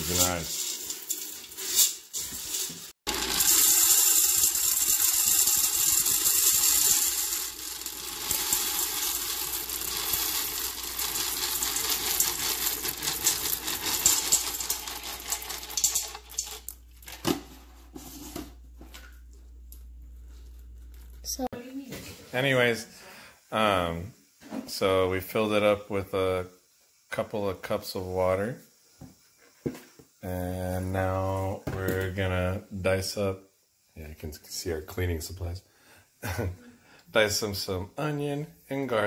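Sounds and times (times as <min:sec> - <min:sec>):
hand stirring dry beans: 0:00.0 - 0:16.7
water pouring into metal pot: 0:00.0 - 0:16.8.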